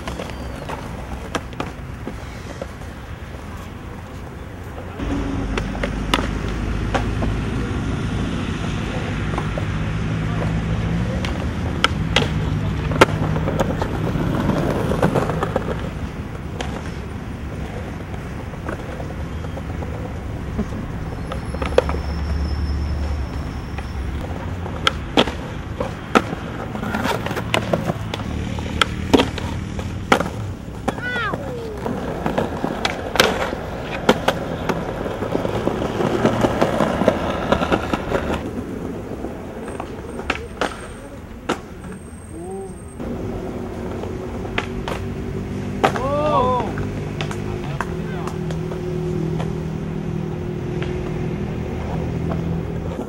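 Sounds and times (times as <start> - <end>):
skateboard popping and landing: 0.0 - 3.5, 4.7 - 7.4, 11.1 - 22.0, 23.8 - 42.0, 43.0 - 49.7
skateboard wheels rolling on concrete: 0.0 - 53.0
skateboard hitting concrete ledge: 45.8 - 48.7.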